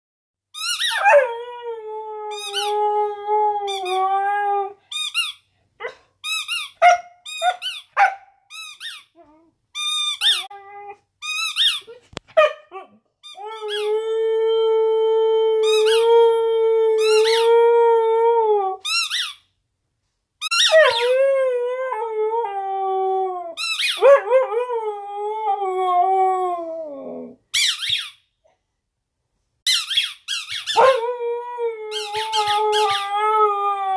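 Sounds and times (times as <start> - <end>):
rubber squeak toy squeaking: 0.6 - 1.0, 4.9 - 5.5, 6.2 - 10.6, 11.2 - 12.0, 13.2 - 13.9, 15.6 - 16.0, 18.8 - 19.5, 20.4 - 21.1, 23.6 - 24.0, 27.5 - 28.3, 29.7 - 30.9
dog yipping: 5.8 - 9.1, 29.8 - 31.0.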